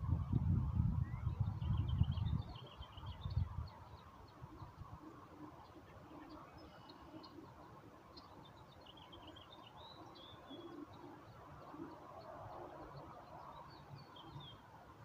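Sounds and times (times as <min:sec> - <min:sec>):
low background noise: 0:00.0 - 0:15.0
faint birdsong: 0:00.9 - 0:15.0.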